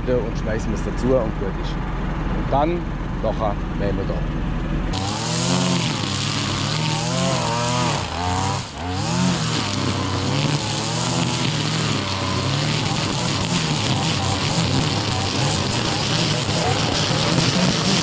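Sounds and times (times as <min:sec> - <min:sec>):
brush cutter engine revving: 0:04.9 - 0:18.0.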